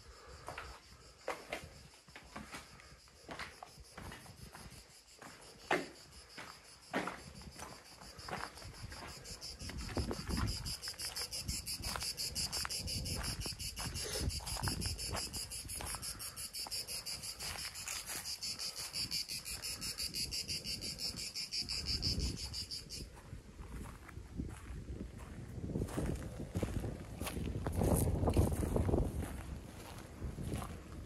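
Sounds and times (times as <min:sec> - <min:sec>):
insects buzzing: 0:00.0 - 0:23.1
footsteps on dry grass: 0:02.4 - 0:31.0.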